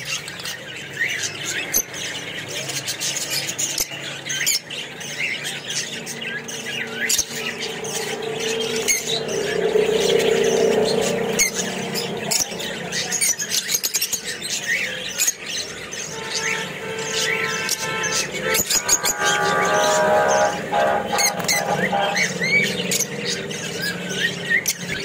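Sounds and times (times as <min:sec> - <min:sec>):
lovebirds chirping and squawking: 0:00.0 - 0:25.0
steady low hum: 0:06.8 - 0:12.6.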